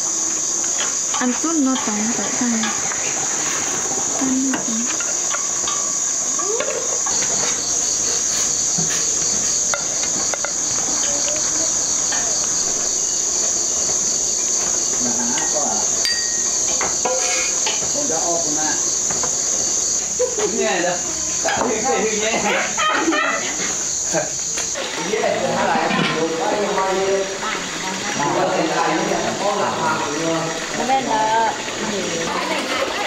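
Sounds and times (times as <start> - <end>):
crickets chirping: 0.0 - 33.0
dishes and utensils clinking: 0.8 - 12.4, 15.3 - 18.0.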